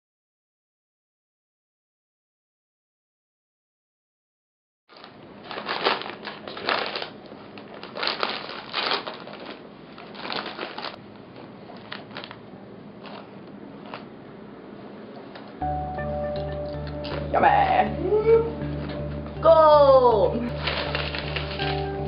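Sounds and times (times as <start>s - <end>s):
snack bag crinkling: 4.9s - 11.0s, 11.7s - 12.4s, 13.0s - 14.1s, 20.5s - 22.0s.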